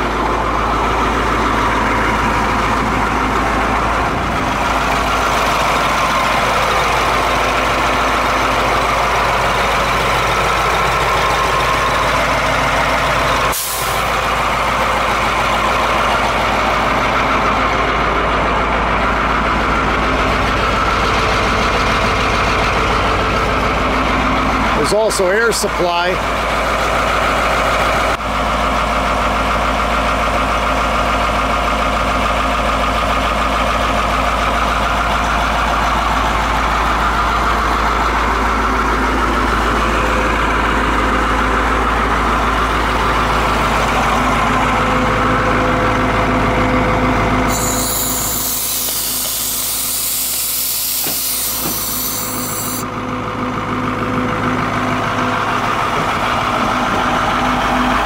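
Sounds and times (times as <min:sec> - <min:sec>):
fire truck diesel engine idling: 0:00.0 - 0:58.0
compressed air hissing: 0:13.5 - 0:14.0, 0:47.5 - 0:52.8.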